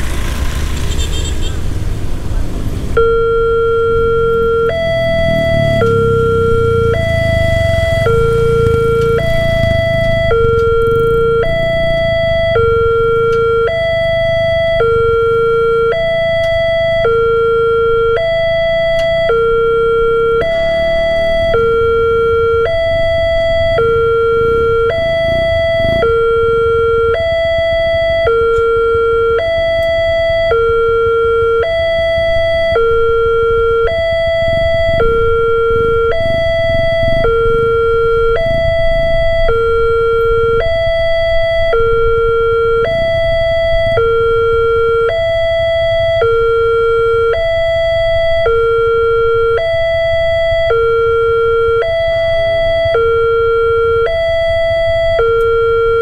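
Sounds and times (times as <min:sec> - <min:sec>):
two-tone crossing alarm: 0:00.8 - 0:01.6, 0:02.9 - 0:56.0.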